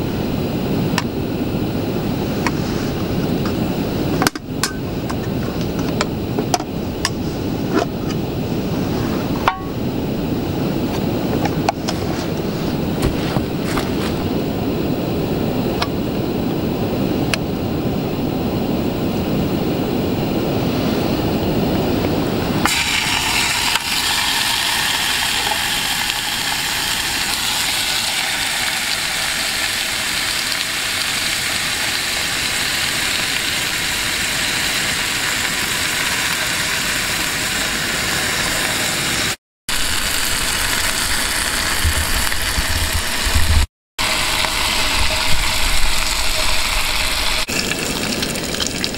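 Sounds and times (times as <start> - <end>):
low steady rumble: 0.0 - 22.6
bacon sizzling: 22.7 - 38.1, 39.2 - 48.9.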